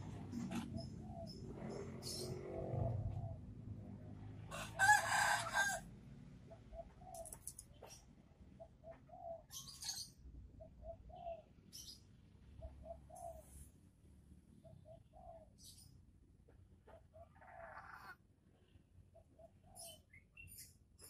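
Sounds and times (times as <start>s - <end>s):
dove cooing: 8.6s - 10.0s, 10.6s - 11.5s, 12.6s - 13.6s, 16.9s - 18.2s.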